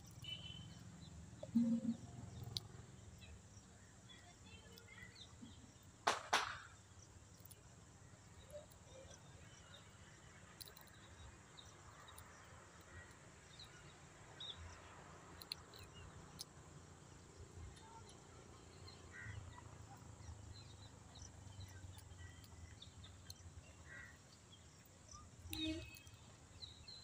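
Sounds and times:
faint high chirps: 0.0 - 5.8, 17.6 - 27.0
sharp clicks: 1.4 - 2.8.

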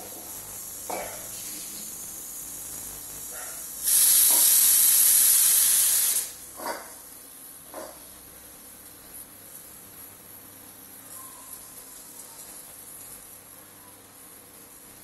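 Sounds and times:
faint hiss of steam: 0.1 - 6.5
pressure cooker whistle: 3.8 - 6.4.

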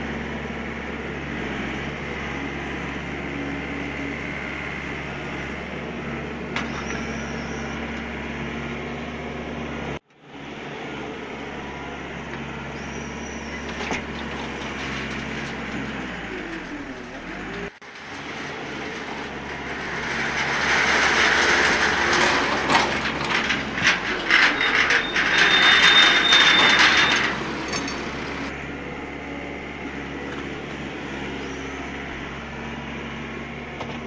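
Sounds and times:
forklift machinery noise: 0.0 - 34.0
brief high squeal: 6.7 - 7.8
metal knocks and clanks: 13.7 - 28.5.

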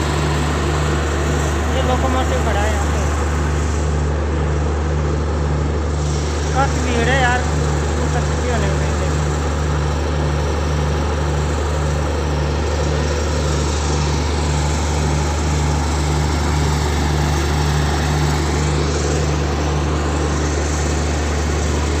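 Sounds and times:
diesel generator droning: 0.0 - 22.0.

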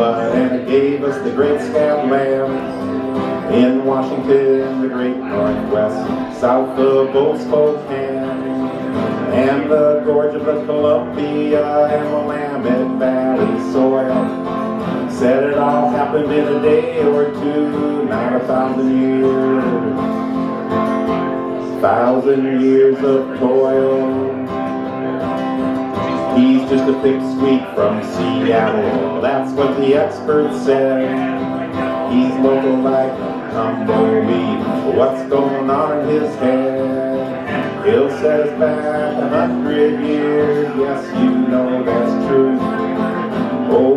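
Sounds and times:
acoustic guitars strummed and picked: 0.0 - 43.9.

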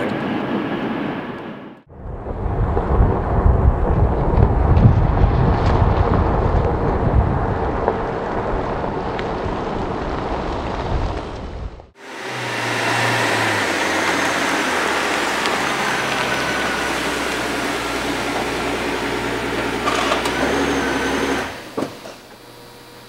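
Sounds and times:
car engine idling: 12.0 - 22.7.

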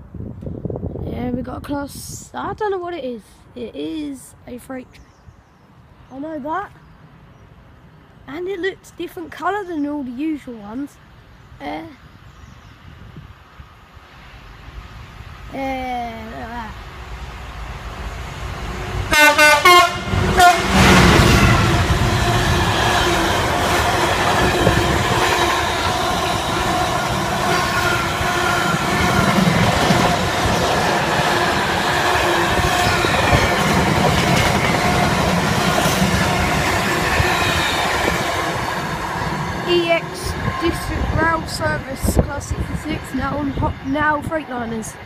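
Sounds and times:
diesel locomotive engine passing: 12.8 - 45.0
train wagons rumbling and rattling: 15.4 - 45.0
locomotive horn: 19.1 - 29.2.

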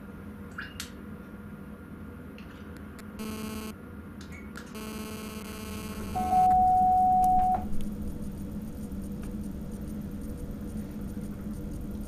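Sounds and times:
loud steady beep: 3.2 - 3.8, 4.8 - 7.7
rasping warning buzzes: 3.2 - 3.8, 4.8 - 8.9
low cab hum: 4.8 - 9.9.

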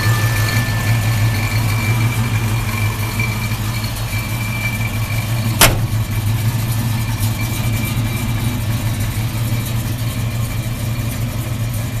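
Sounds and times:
truck engine idling: 0.0 - 12.0
sharp click: 5.6 - 6.1.

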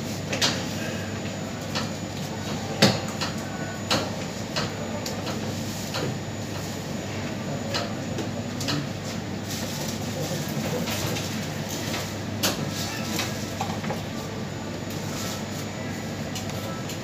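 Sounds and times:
steady background noise: 0.0 - 17.0.

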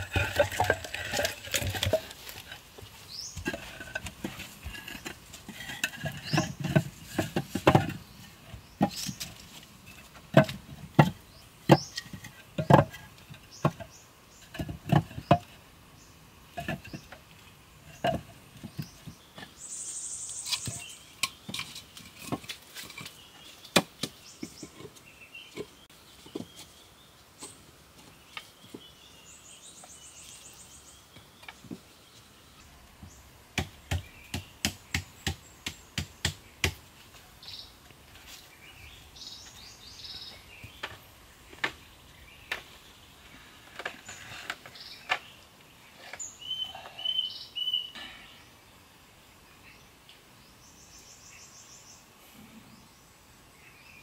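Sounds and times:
wooden poles knocking: 0.0 - 9.4, 10.0 - 15.6, 17.9 - 19.5.

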